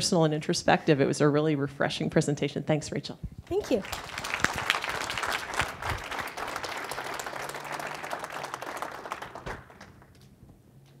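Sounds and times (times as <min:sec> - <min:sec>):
audience applauding: 0:03.6 - 0:10.2.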